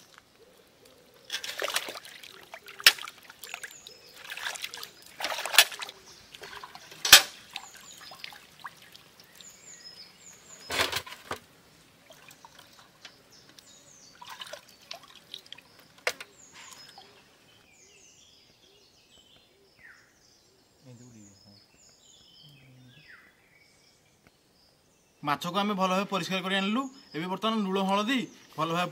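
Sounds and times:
water splashing and dripping: 0.0 - 17.2
small birds chirping: 0.0 - 28.9.

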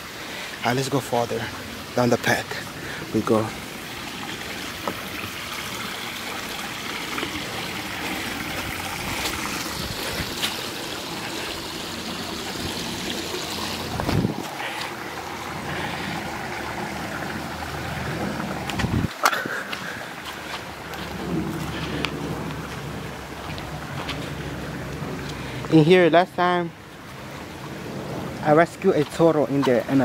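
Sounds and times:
creek trickling over rocks: 0.0 - 30.0
low bumps: 7.0 - 25.6.

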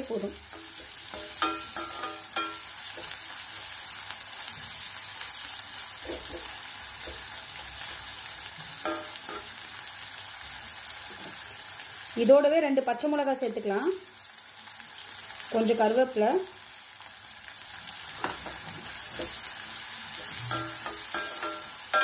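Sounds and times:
onions sizzling in oil: 0.0 - 22.0
spatula clinking against pan: 0.5 - 3.1, 8.8 - 9.5, 20.5 - 22.0.

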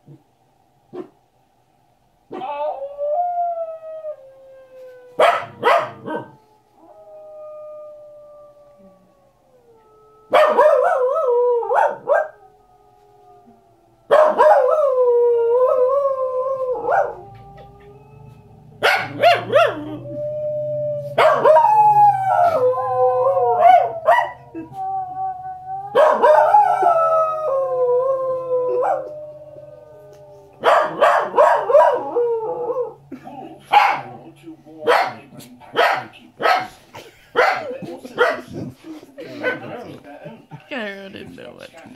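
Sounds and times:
dog howling and yipping: 2.3 - 4.2, 10.2 - 12.4, 14.1 - 33.1
wolf howls from television: 2.3 - 38.6.

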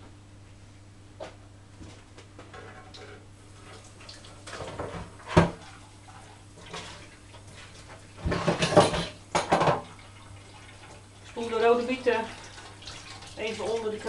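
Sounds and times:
kitchen clattering: 6.7 - 10.0.

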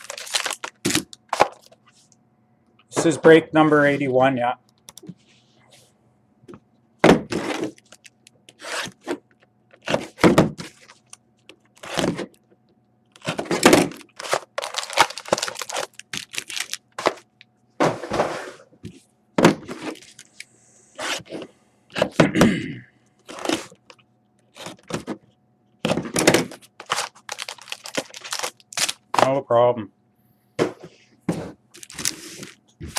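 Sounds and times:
box knocks and scrapes: 17.8 - 18.6.

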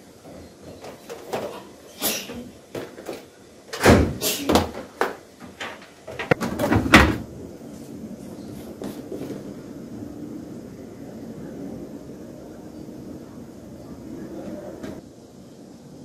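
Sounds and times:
faint steady hum: 0.0 - 16.0
cupboard door shutting: 3.8 - 4.8, 6.1 - 7.3.

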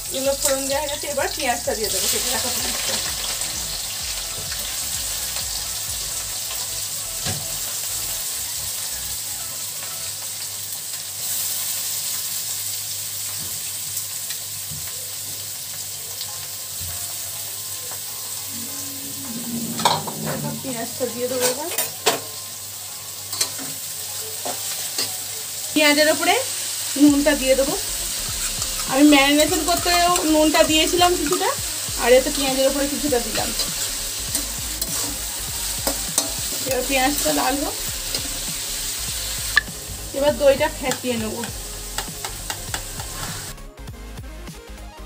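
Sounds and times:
onions sizzling in oil: 0.0 - 43.8
metal ladle scraping a pan: 18.6 - 22.0, 28.1 - 30.7.

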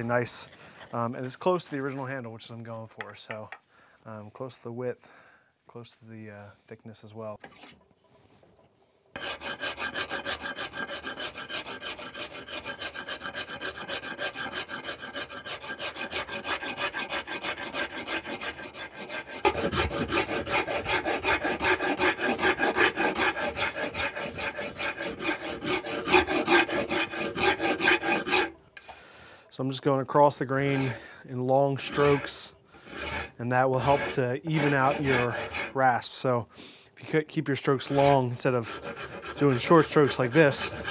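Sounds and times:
wood rasp scraping wood: 9.1 - 28.6, 30.5 - 36.0, 37.6 - 40.9.

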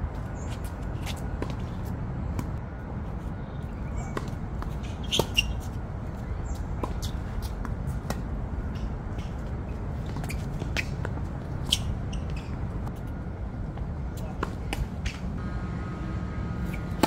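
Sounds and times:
sneaker squeaks and scuffs: 3.7 - 7.7, 9.2 - 12.8
racket hitting tennis ball: 4.1 - 5.8, 16.6 - 17.0.

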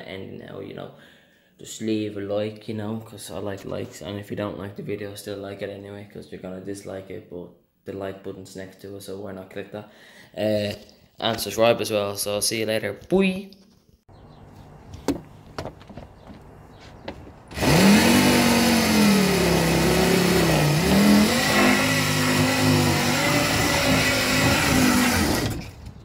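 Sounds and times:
motor revving: 17.5 - 26.0.

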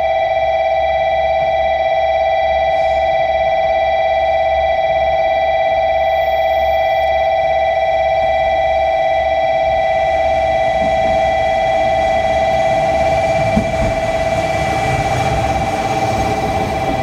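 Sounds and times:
railcar rolling past: 9.1 - 17.0.

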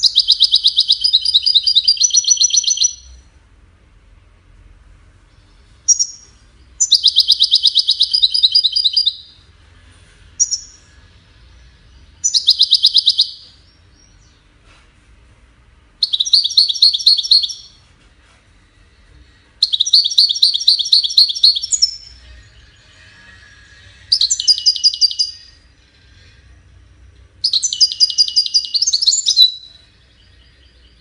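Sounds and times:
goldfinch trilling song: 0.0 - 3.2, 5.9 - 9.4, 12.1 - 14.4, 16.0 - 17.8, 19.6 - 25.6, 27.4 - 31.0.

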